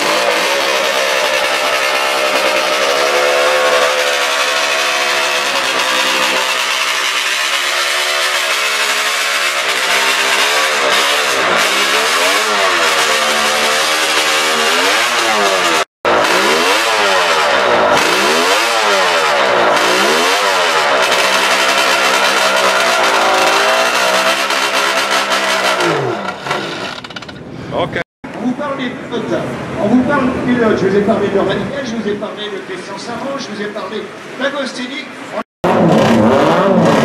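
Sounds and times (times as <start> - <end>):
racing engine revving: 0.0 - 27.3, 35.6 - 37.0.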